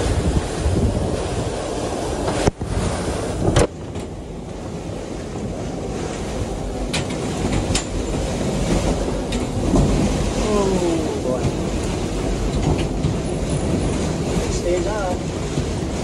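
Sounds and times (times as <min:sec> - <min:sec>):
storm wind rushing: 0:00.0 - 0:16.0.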